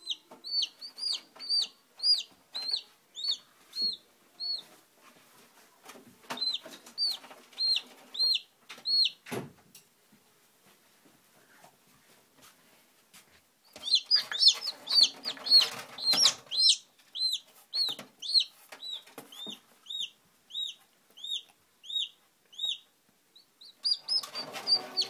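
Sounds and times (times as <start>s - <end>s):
chick peeping: 0.0s - 4.8s, 6.2s - 9.2s, 13.6s - 25.0s.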